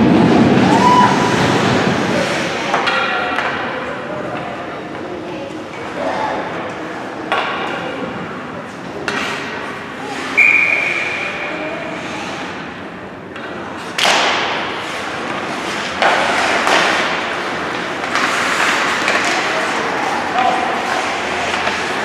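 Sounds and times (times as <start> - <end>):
hockey sticks and puck knocking: 7.3 - 7.9, 9.0 - 9.6, 13.3 - 22.0.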